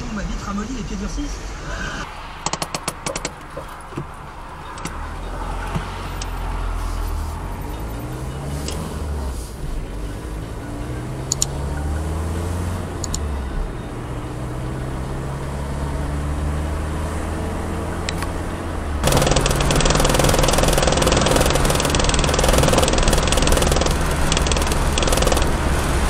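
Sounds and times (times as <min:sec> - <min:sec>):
car engine: 0:00.0 - 0:26.0
road and wind noise: 0:00.0 - 0:26.0
sharp clicks: 0:02.4 - 0:03.8, 0:11.3 - 0:11.6, 0:13.0 - 0:13.3, 0:19.0 - 0:25.8.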